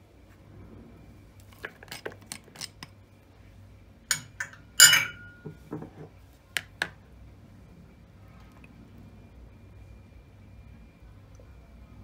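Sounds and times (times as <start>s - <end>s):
glassy clinks: 4.1s - 5.5s.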